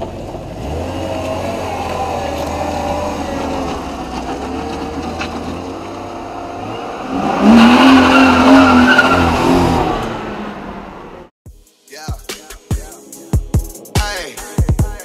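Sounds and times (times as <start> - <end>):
tires squealing: 0.0 - 11.2
car engine revving: 0.0 - 11.3.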